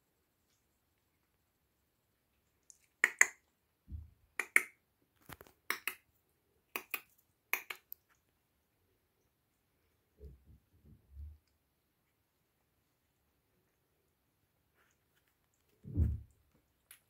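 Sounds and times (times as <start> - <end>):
sharp clicks in pairs: 2.7 - 3.4, 4.4 - 4.8, 6.7 - 8.0
soft low bump: 15.8 - 16.3.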